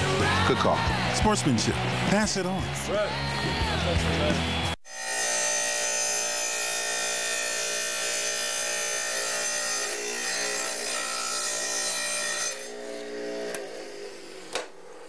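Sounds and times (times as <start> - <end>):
tile saw cutting tile: 4.9 - 15.0.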